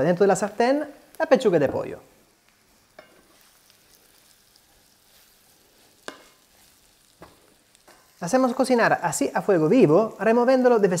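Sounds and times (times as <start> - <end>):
chicken frying with faint sizzle: 0.0 - 11.0.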